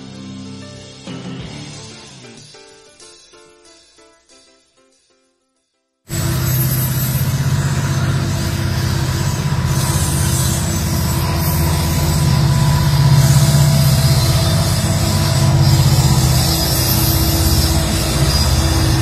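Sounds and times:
diesel locomotive engines droning: 0:06.1 - 0:19.0
wheels slipping on rails: 0:06.1 - 0:19.0.

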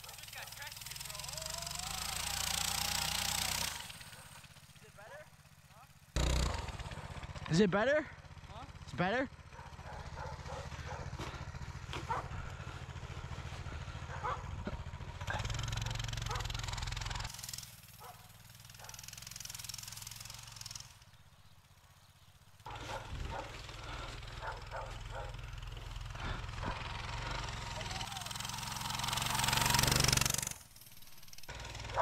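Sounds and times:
small motorbike engine idling: 0:00.0 - 0:32.0
snow shovel scraping snow: 0:22.7 - 0:32.0.

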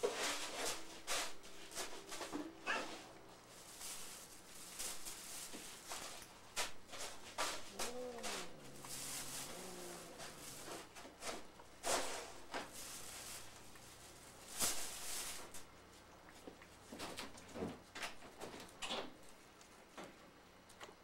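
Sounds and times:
plastic bag rustling: 0:00.0 - 0:15.7
cat meowing: 0:02.6 - 0:03.1.

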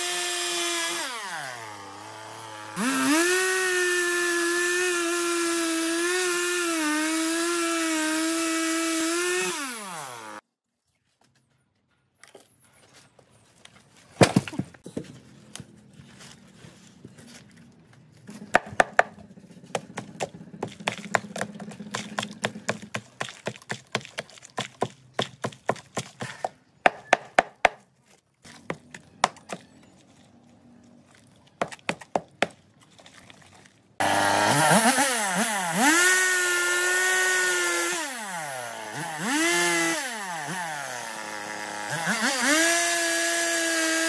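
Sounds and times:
chainsaw revving: 0:00.0 - 0:10.4, 0:19.0 - 0:23.0, 0:34.0 - 0:44.0
blade chopping roots: 0:14.2 - 0:15.7, 0:18.3 - 0:27.8, 0:34.0 - 0:44.0.

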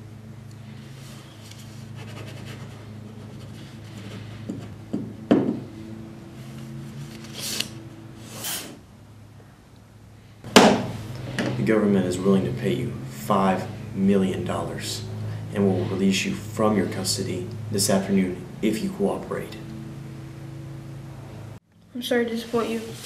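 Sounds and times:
low steady hum: 0:00.0 - 0:23.0
rustling and rubbing: 0:22.3 - 0:23.0.

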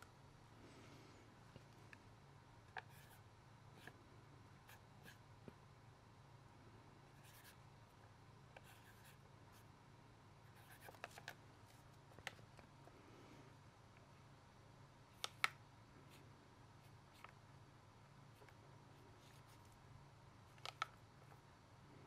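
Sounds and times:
low steady hum: 0:00.0 - 0:22.0
marker pen scratching on paper: 0:02.8 - 0:03.2, 0:07.2 - 0:07.6, 0:08.6 - 0:09.7, 0:10.5 - 0:11.9.

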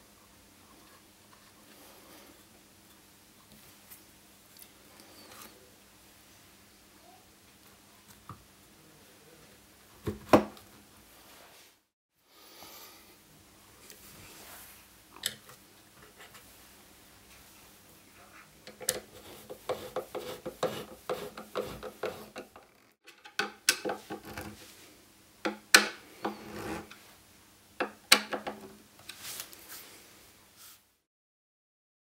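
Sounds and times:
screwdriver scraping metal frame: 0:18.7 - 0:24.6, 0:26.1 - 0:27.0.

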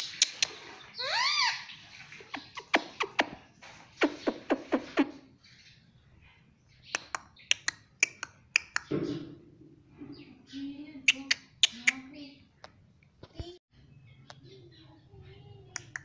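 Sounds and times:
parrot tongue clicks: 0:07.0 - 0:08.9, 0:11.1 - 0:12.0, 0:15.8 - 0:16.0.

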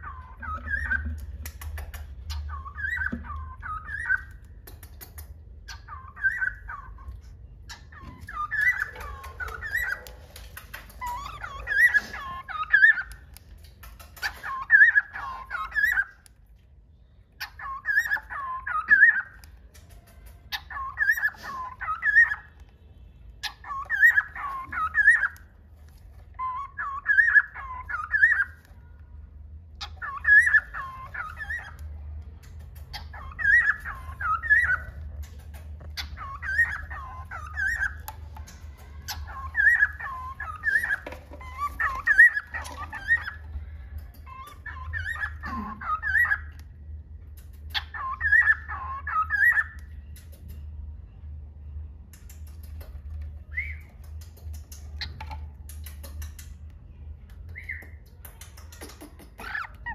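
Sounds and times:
cockatiel whistling: 0:00.0 - 0:01.1, 0:02.4 - 0:04.4, 0:07.9 - 0:10.1, 0:23.4 - 0:25.4, 0:33.0 - 0:35.0, 0:36.0 - 0:38.1, 0:47.7 - 0:49.8, 0:53.5 - 0:53.9
cockatiel chirp: 0:00.0 - 0:04.6, 0:05.6 - 0:13.4, 0:14.0 - 0:16.4, 0:17.3 - 0:19.5, 0:20.5 - 0:22.7, 0:23.4 - 0:25.6, 0:26.4 - 0:28.7, 0:29.7 - 0:31.9, 0:32.8 - 0:35.2, 0:35.8 - 0:43.4, 0:44.2 - 0:46.7, 0:47.7 - 0:50.0.

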